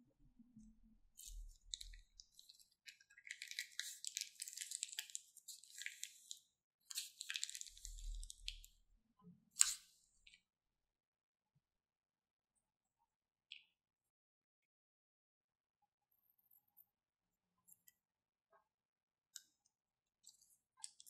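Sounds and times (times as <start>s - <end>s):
slime squeezed from piping bag: 1.2s - 8.6s, 9.6s - 9.9s.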